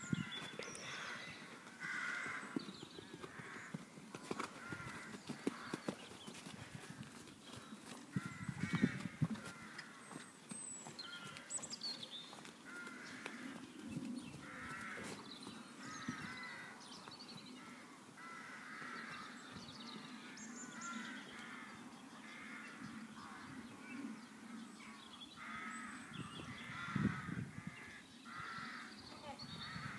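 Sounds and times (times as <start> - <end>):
crows cawing: 0.3 - 2.6, 3.2 - 5.8, 8.2 - 10.2, 12.6 - 13.6, 14.4 - 15.2, 15.8 - 16.8, 17.6 - 19.4, 20.3 - 23.6, 24.8 - 29.0.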